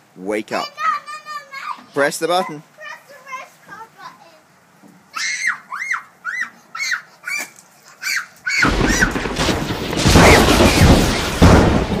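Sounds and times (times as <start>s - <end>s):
explosion boom: 8.6s - 12.0s
rumbling blast: 8.6s - 12.0s.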